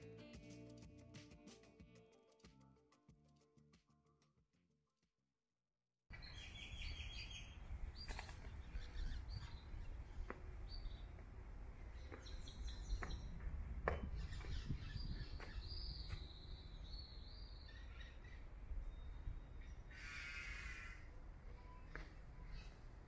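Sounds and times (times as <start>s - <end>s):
birds chirping: 6.1s - 23.0s.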